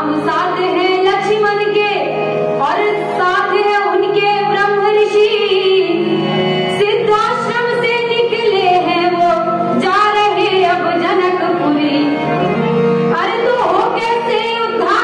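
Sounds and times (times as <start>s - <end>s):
instrumental accompaniment: 0.0s - 15.0s
woman singing: 6.8s - 12.2s.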